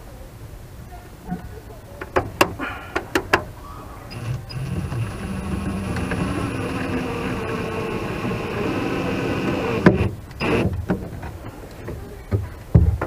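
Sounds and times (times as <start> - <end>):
cordless drill driving screw: 4.1 - 10.7.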